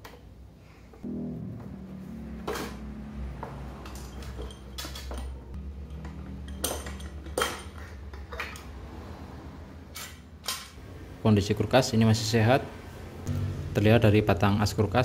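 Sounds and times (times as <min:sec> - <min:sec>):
metal parts clinking: 0:03.8 - 0:08.6, 0:09.9 - 0:10.8.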